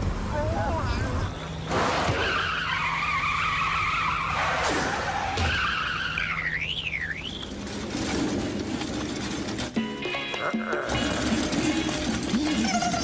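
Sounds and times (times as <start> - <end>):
cartoon truck engine running: 5.8 - 13.0.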